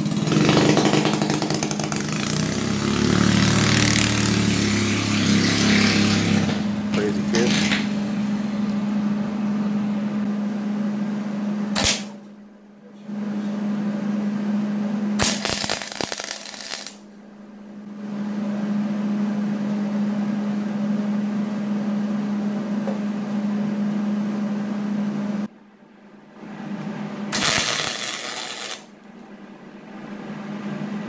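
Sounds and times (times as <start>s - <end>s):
arc welder humming and hissing: 0.0s - 12.3s, 14.8s - 17.1s, 27.3s - 29.1s
welding arc crackle: 11.8s - 12.1s, 15.2s - 17.0s, 27.3s - 28.9s.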